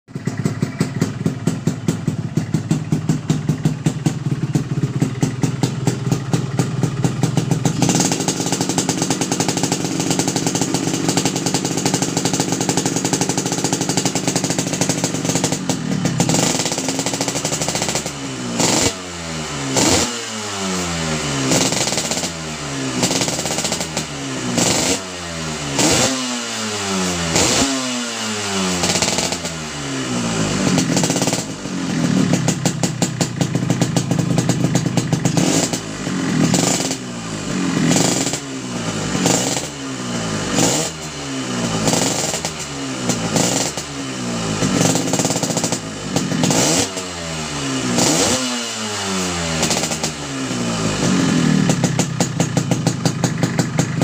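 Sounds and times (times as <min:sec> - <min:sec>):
two-stroke motorcycle engine revving: 0:00.1 - 0:54.0.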